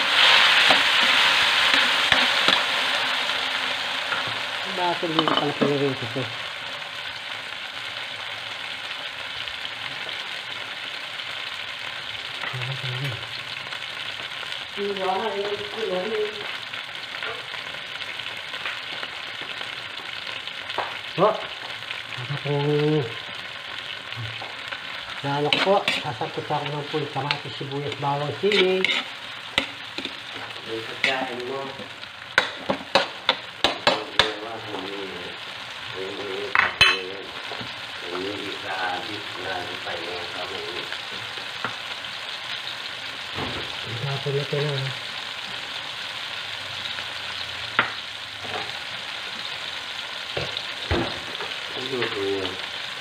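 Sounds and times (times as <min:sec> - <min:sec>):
vegetables sizzling in oil: 0:00.0 - 0:53.0
metal ladle scraping wok: 0:25.4 - 0:31.3.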